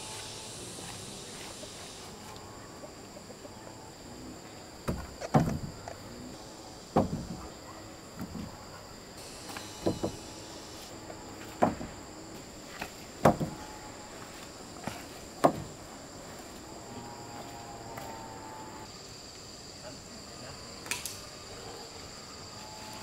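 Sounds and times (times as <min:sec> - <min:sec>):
high insect buzz: 0:00.0 - 0:23.0
wooden poles knocking: 0:04.8 - 0:06.0, 0:06.9 - 0:08.6, 0:09.5 - 0:10.3, 0:11.4 - 0:12.0, 0:12.7 - 0:13.6, 0:14.8 - 0:15.8.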